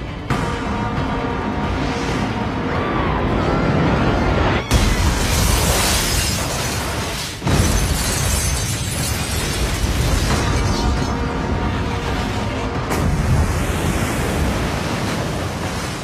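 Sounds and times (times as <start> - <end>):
rumble of fire and debris: 0.0 - 16.0
glass shattering: 4.7 - 10.9
crash and explosion: 4.7 - 16.0.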